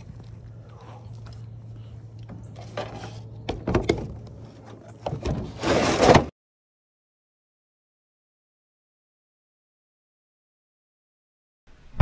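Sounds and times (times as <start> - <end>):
low hum: 0.0 - 5.6
knocks and clunks: 2.3 - 6.3.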